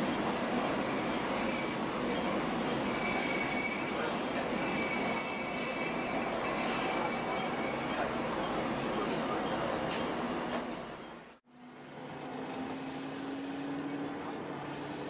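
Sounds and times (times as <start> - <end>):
faint high wheel squeal: 0.8 - 11.0.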